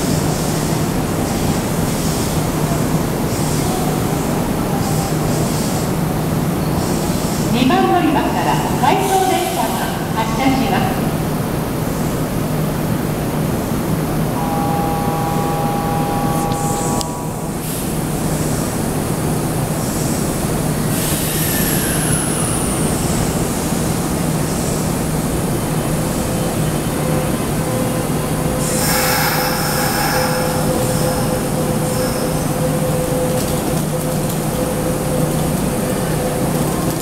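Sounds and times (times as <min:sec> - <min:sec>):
train running noise and hum: 0:00.0 - 0:37.0
motor whine falling in pitch: 0:14.4 - 0:17.4
high two-tone squeal: 0:14.4 - 0:18.2, 0:28.6 - 0:33.4.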